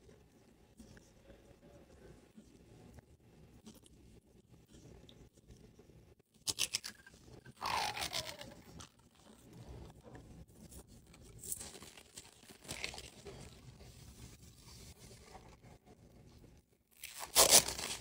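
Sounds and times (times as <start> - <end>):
plastic wrap crinkling: 11.4 - 13.6
plastic wrap tearing: 17.0 - 18.0.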